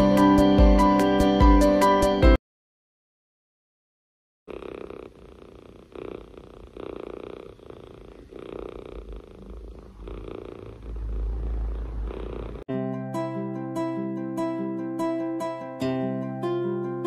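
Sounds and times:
kitten purring: 4.5 - 12.7
low rumble: 9.3 - 12.6.

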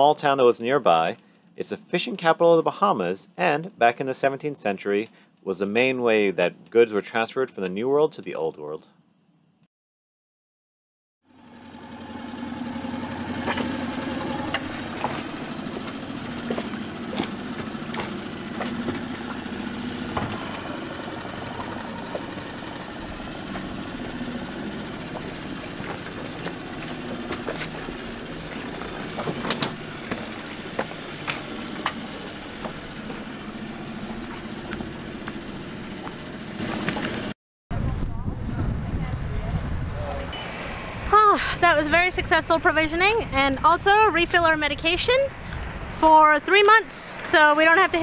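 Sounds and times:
outboard motor idling: 11.3 - 37.3, 40.1 - 48.0.

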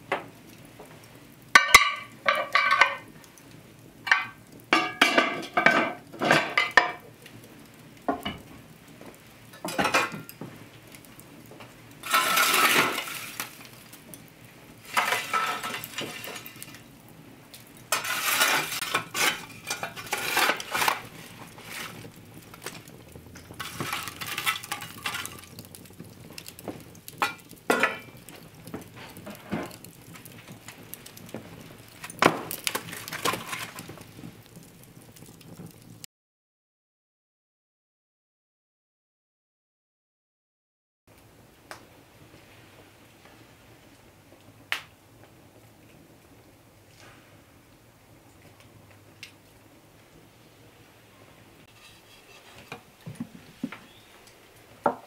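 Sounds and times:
shovel scraping hot coals: 0.3 - 35.9, 51.6 - 54.1
metal pot lid clanking: 1.6 - 3.0.

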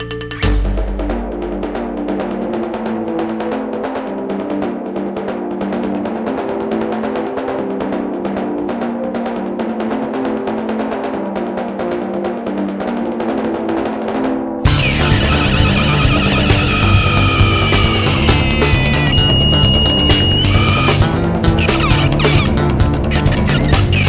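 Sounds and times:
rapid drumming: 14.6 - 24.0
sustained low notes: 14.7 - 23.0.

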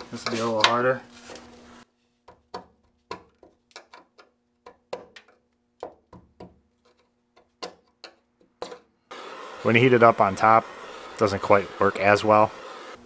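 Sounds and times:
metal scraper scraping metal: 0.0 - 1.4.

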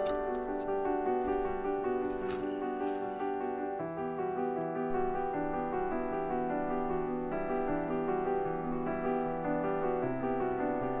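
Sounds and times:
piano tune: 0.0 - 11.0.

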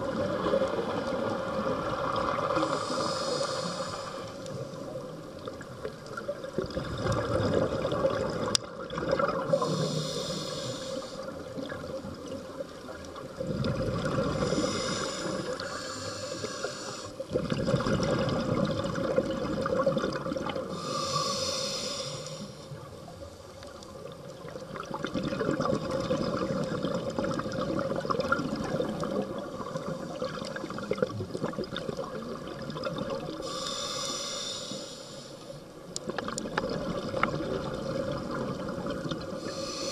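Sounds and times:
regulator hissing inhalations: 2.6 - 4.5, 9.5 - 11.4, 14.4 - 17.3, 20.7 - 22.8, 33.4 - 35.6, 39.4 - 39.9
bubbling exhaled air: 6.5 - 12.0, 13.4 - 22.4, 24.7 - 34.9, 36.0 - 39.9.

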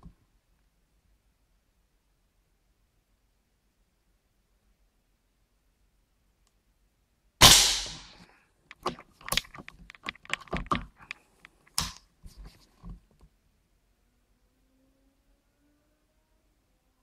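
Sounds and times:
air rifle shot: 7.4 - 8.2
rifle handling clicks and knocks: 8.7 - 13.2.

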